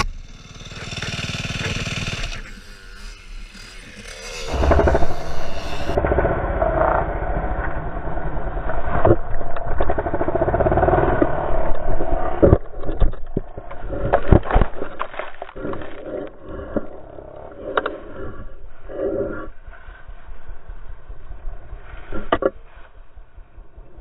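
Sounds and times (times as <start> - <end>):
dirt bike engine revving: 0.0 - 6.0.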